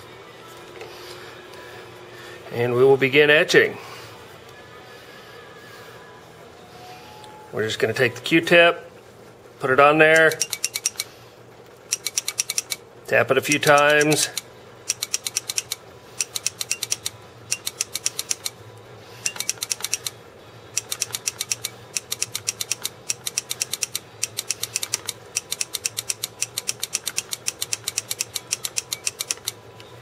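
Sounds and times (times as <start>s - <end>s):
rapid sharp clicking: 11.9s - 12.8s, 13.5s - 18.5s, 20.8s - 29.6s.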